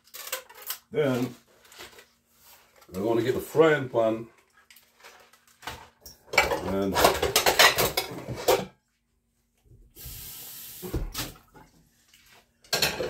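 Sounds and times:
metal cookware clattering: 5.7s - 8.8s, 12.7s - 13.0s
short steady hiss: 10.0s - 11.3s.

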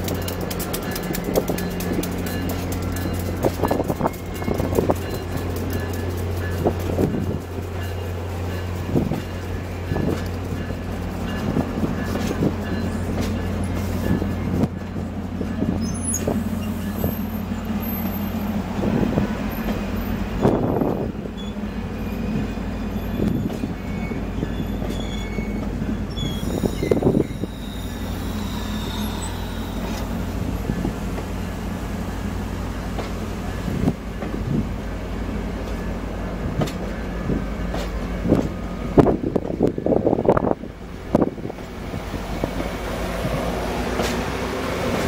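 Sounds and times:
train wheels clicking over rail joints: 0.0s - 45.0s
wheel squeals: 15.7s - 18.5s, 19.5s - 30.9s.

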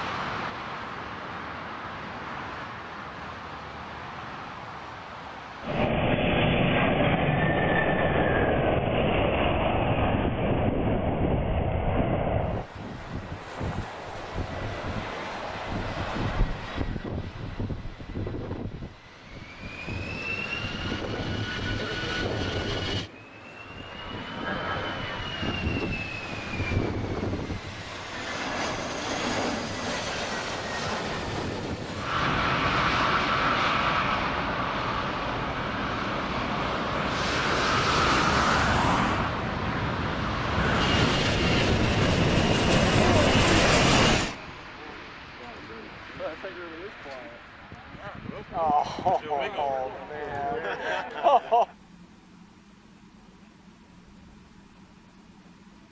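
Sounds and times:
jet engine roar: 0.0s - 55.9s
jet engine whine: 0.0s - 55.9s.

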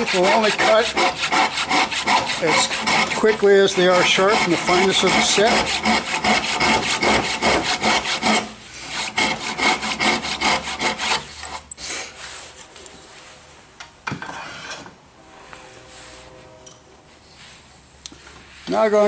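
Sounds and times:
hand saw cutting wood: 0.0s - 11.7s.

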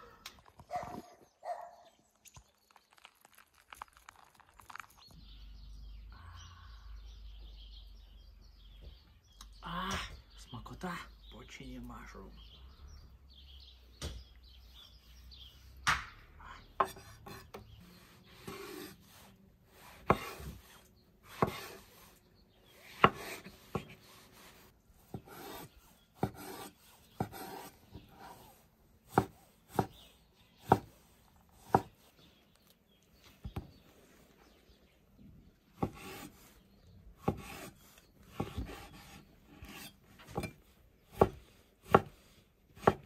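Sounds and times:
knife chopping on wooden board: 19.9s - 20.6s, 21.3s - 21.8s, 22.9s - 24.0s, 25.1s - 28.5s, 29.1s - 30.0s, 30.6s - 31.0s, 31.6s - 32.0s, 35.8s - 36.3s, 37.2s - 37.7s, 38.3s - 42.2s, 42.8s - 43.0s.

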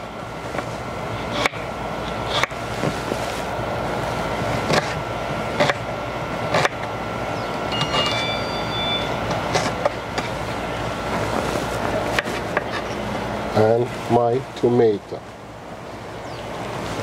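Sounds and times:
steady background noise: 0.0s - 17.0s
knife cutting an onion: 1.3s - 2.6s, 5.6s - 5.8s.

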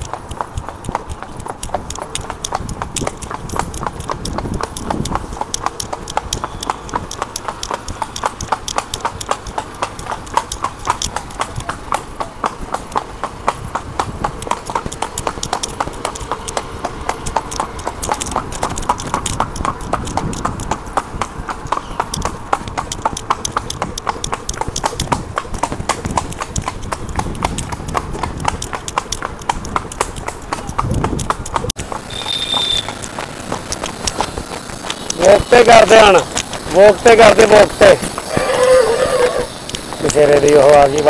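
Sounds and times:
horse hooves clip-clopping on road: 0.0s - 41.0s.

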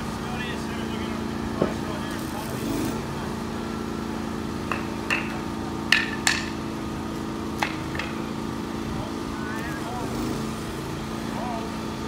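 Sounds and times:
engine running: 0.0s - 12.0s
sharp metal clanks: 4.7s - 6.7s, 7.6s - 8.4s.

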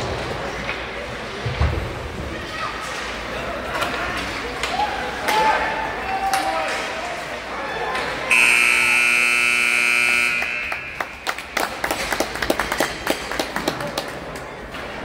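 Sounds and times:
buzzing horn: 8.2s - 11.4s
sharp claps and clicks: 10.4s - 14.5s.

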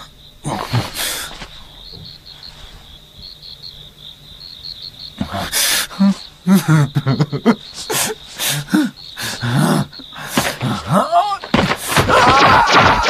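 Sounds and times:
young man sobbing and wailing: 5.3s - 13.0s.

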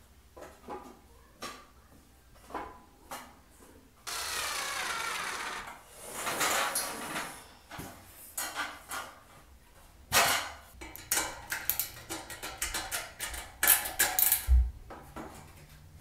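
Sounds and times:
metal frame clicks and knocks: 10.1s - 14.5s.

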